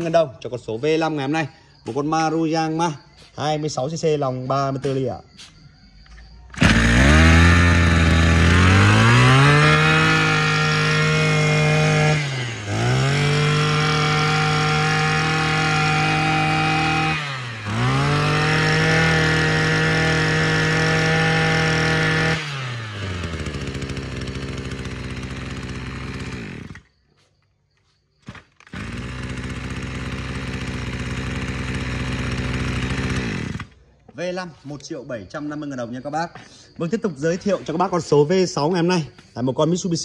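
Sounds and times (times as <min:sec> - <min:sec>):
brush cutter engine revving: 0:06.5 - 0:26.9, 0:28.2 - 0:33.8.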